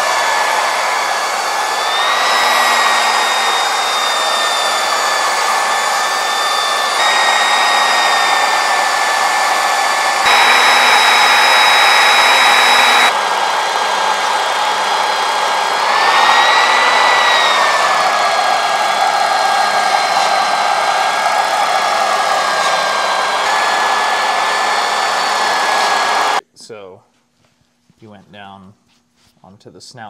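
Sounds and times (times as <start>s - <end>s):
belt polisher whining: 0.0s - 26.4s.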